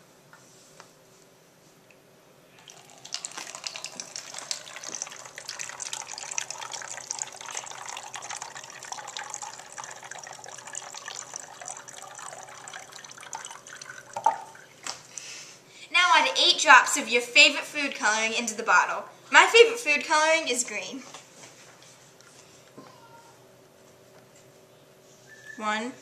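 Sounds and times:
liquid pouring into plastic bottle: 0:02.6 - 0:14.8.

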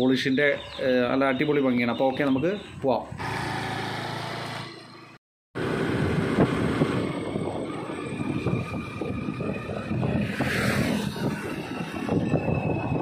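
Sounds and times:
motor scooter engine: 0:03.2 - 0:12.6
wind buffeting microphone: 0:05.7 - 0:13.0.

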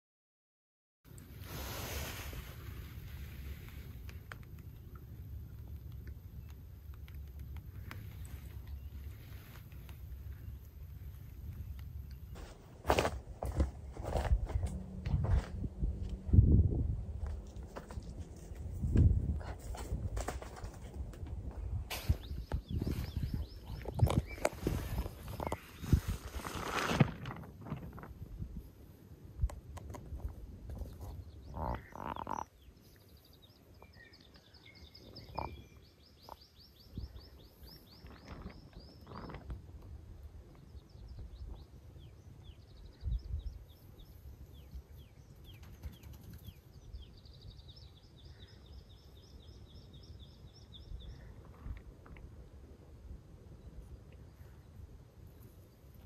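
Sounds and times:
faint rustles and thumps: 0:07.3 - 0:16.3, 0:17.1 - 0:28.7, 0:37.8 - 0:40.0
songbird trilling: 0:31.2 - 0:32.7, 0:33.8 - 0:39.3.

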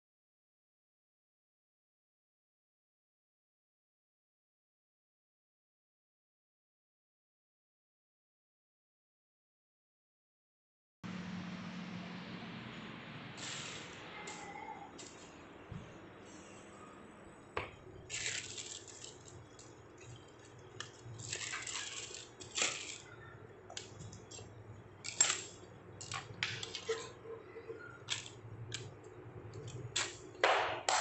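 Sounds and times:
plastic packet crinkling: 0:17.9 - 0:27.2, 0:27.8 - 0:30.4
small parts clicking and clinking: 0:18.1 - 0:27.2, 0:27.9 - 0:30.2.

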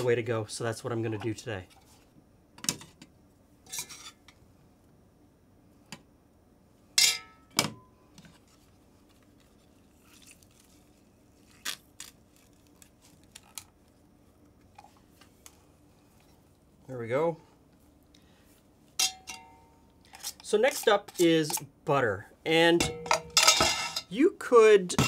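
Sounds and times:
soft squeezing sounds: 0:08.3 - 0:16.9.

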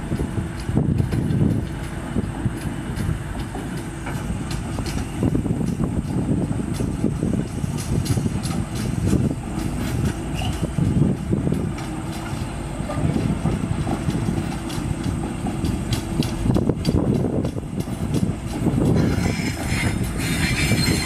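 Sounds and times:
diesel locomotive engine running: 0:00.0 - 0:21.0
train wheels clanking on track: 0:00.0 - 0:21.0.

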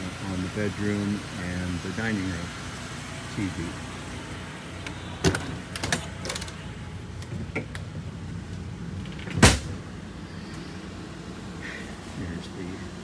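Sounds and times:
steady low hum: 0:00.0 - 0:13.0
loud thump: 0:09.3 - 0:09.8.

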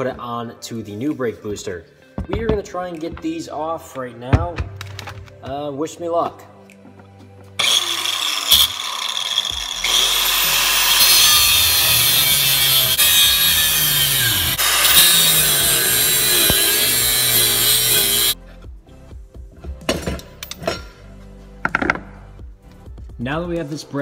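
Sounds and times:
angle grinder cutting steel: 0:07.6 - 0:18.4.

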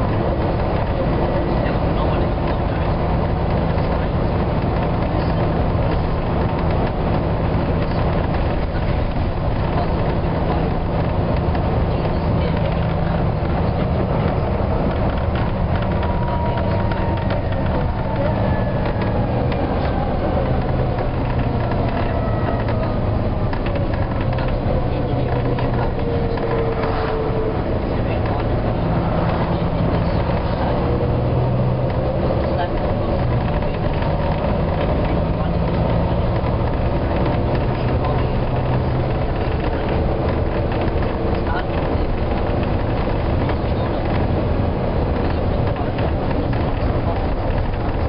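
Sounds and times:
bus engine and road noise drone: 0:00.0 - 0:48.0.

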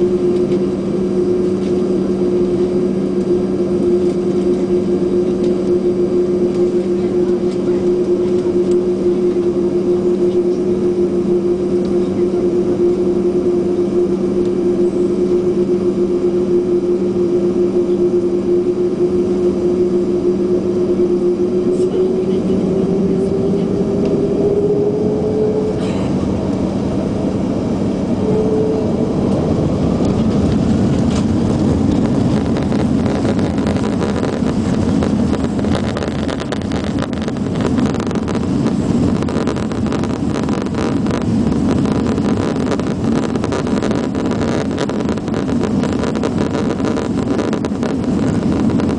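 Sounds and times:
jet engine whine: 0:00.0 - 0:48.9
rumble with rattling: 0:00.0 - 0:48.9.

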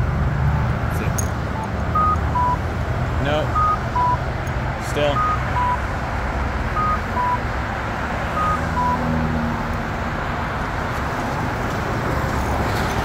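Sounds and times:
passing road traffic: 0:00.0 - 0:13.0
two-note electronic beep: 0:01.6 - 0:02.6, 0:03.5 - 0:04.2, 0:05.1 - 0:05.8, 0:06.8 - 0:07.4, 0:08.4 - 0:09.1.

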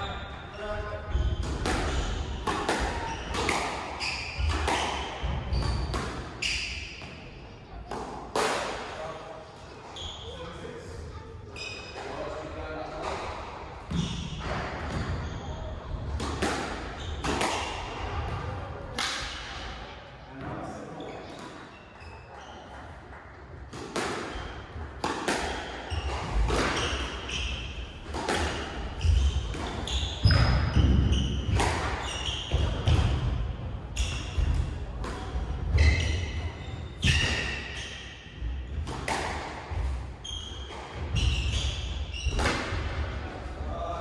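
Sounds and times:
squash ball smacking off rackets: 0:28.1 - 0:28.7.

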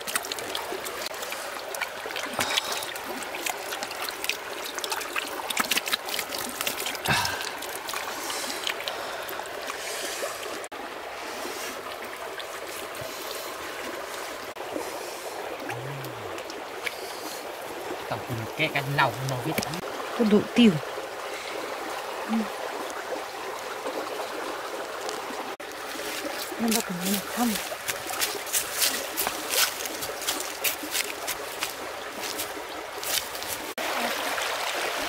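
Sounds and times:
small splashes and squelches: 0:00.0 - 0:35.0
trickling water: 0:00.0 - 0:35.0
hands slapping wet mud: 0:02.4 - 0:08.9, 0:26.0 - 0:33.7.

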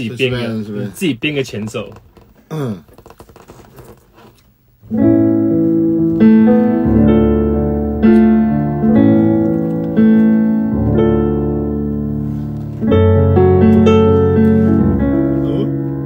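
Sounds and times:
slow piano chords: 0:04.8 - 0:16.0.

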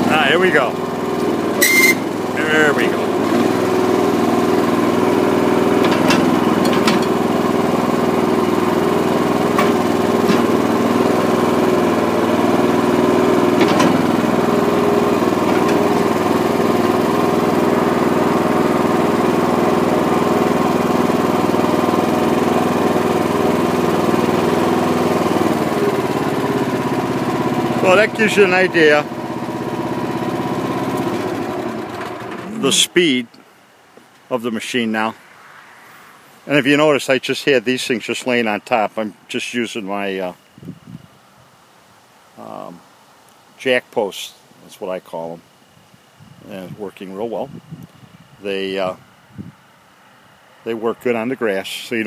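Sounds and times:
small gasoline engine running: 0:00.0 - 0:32.9.

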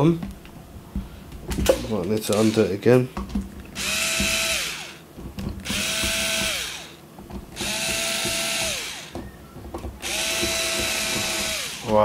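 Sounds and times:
electric screwdriver motor whining: 0:03.8 - 0:05.0, 0:05.6 - 0:07.0, 0:07.6 - 0:09.2, 0:10.0 - 0:12.0.

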